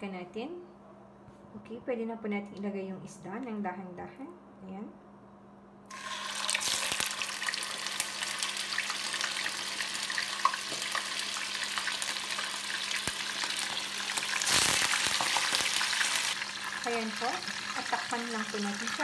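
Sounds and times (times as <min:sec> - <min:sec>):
fish frying in oil: 0:05.9 - 0:19.0.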